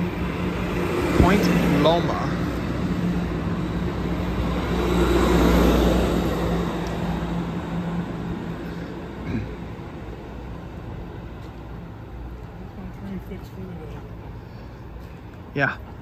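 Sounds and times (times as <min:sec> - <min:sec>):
passenger train rolling past: 0:00.0 - 0:08.6.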